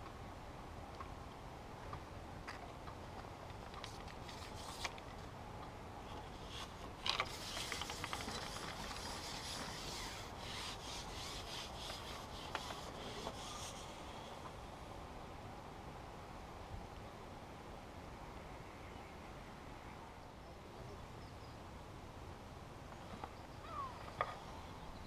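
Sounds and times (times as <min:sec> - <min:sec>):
fishing pole rubbing and sliding: 0:03.8 - 0:05.0, 0:06.0 - 0:14.5.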